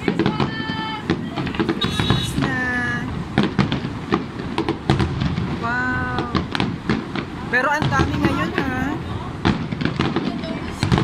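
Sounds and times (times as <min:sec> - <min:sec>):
fireworks bursting with crackles: 0:00.0 - 0:11.0.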